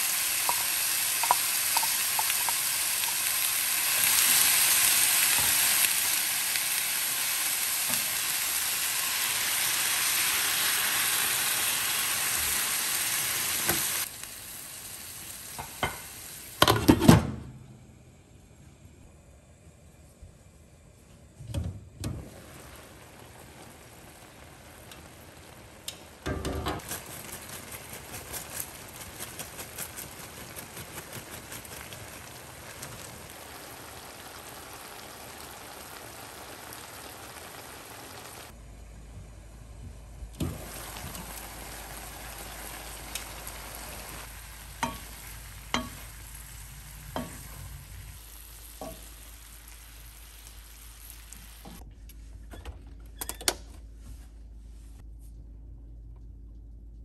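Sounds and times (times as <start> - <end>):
food sizzling in a pan: 0.0 - 16.7, 22.2 - 38.6, 40.4 - 51.8
utensil tapping a pan: 0.4 - 3.2, 44.8 - 46.0.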